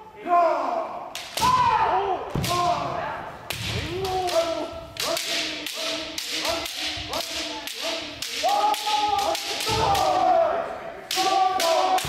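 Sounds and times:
people shouting: 0.2s - 3.1s, 3.7s - 12.0s
bamboo swords striking: 3.5s - 10.3s, 11.1s - 12.0s.

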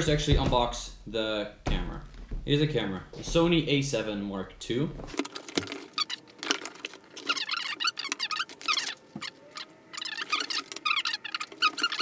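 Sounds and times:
packaging rustling: 5.1s - 12.0s
squeaky cardboard rubbing: 5.8s - 12.0s.

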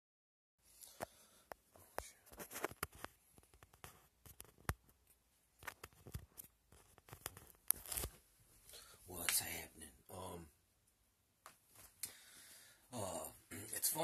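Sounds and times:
device handling clicks and rustles: 2.3s - 8.2s.

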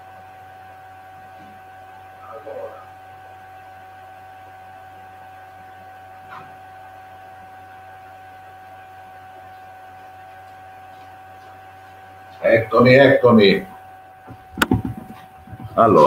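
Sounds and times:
steady whine: 10.9s - 16.0s.

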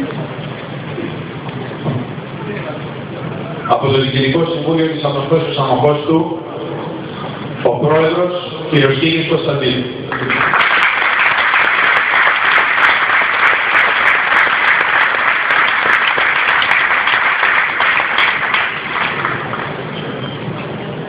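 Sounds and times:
crowd applauding: 10.1s - 20.3s.

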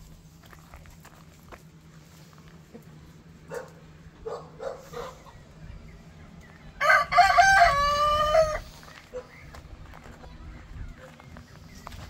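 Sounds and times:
rooster crowing: 6.8s - 8.8s.

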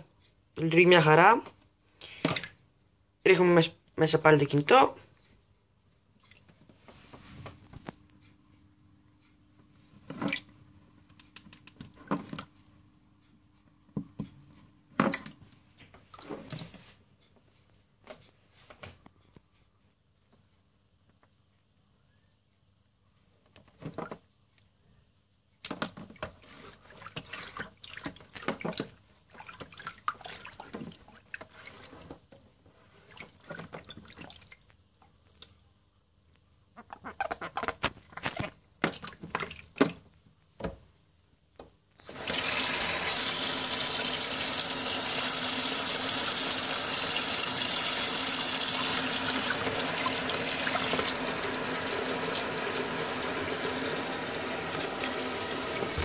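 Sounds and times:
water sloshing and splashing: 2.2s - 2.6s, 25.6s - 35.6s, 37.5s - 40.2s.

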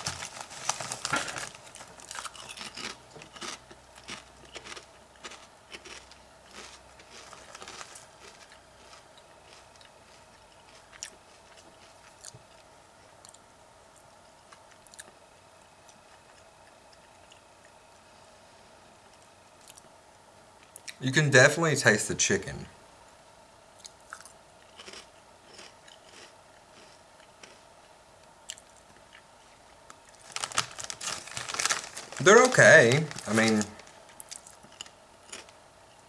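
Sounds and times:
person chewing crunchy chips: 0.0s - 13.4s, 23.8s - 27.7s, 29.9s - 35.6s.

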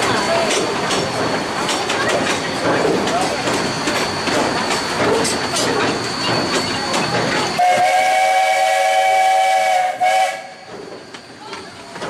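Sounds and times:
train clatter and rail clicks: 0.0s - 12.0s
steam locomotive whistle: 7.6s - 10.7s.

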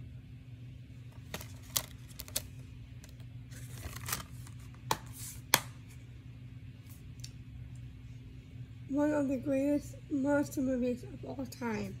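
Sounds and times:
faint low hum: 0.0s - 12.0s
plastic case clicks and rustles: 1.2s - 2.5s.

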